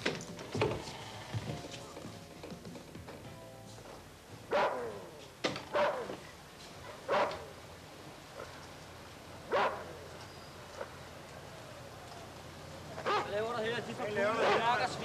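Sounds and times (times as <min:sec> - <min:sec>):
animal barking: 0:04.5 - 0:06.2, 0:07.0 - 0:07.6, 0:09.5 - 0:10.0, 0:13.0 - 0:13.4.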